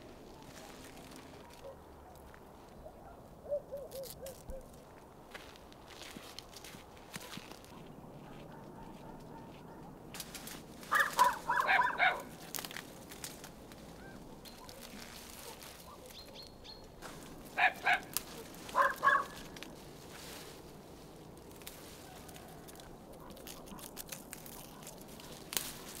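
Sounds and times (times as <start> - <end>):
bird calls: 14.0 - 19.5.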